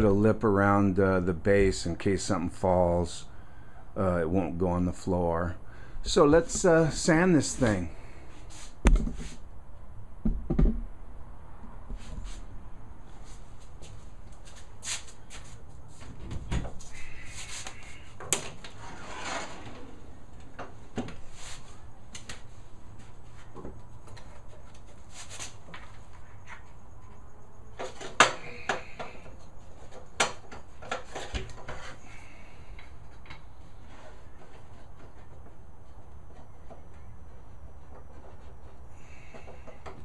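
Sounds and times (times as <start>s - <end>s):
sandpaper sheets rustling: 14.4s - 15.6s, 24.9s - 25.6s.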